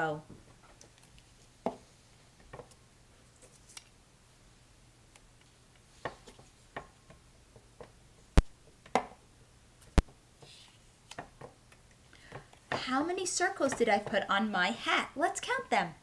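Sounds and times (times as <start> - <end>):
paper rustling: 3.3 - 3.9.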